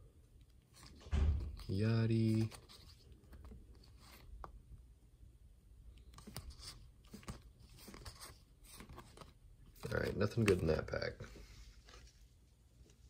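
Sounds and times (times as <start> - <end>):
cards sliding and ticking: 5.9 - 12.2.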